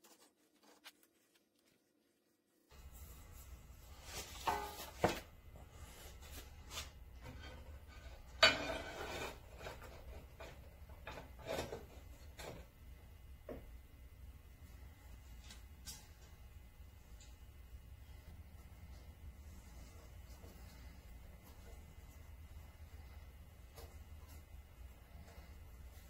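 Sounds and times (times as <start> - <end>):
steady low hum: 2.7 - 26.0
steel plate clanking on metal: 8.3 - 9.2.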